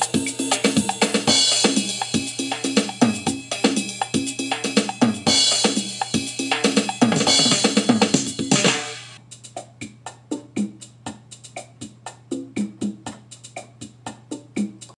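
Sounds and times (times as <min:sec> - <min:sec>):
electronic keyboard music: 0:00.0 - 0:11.0.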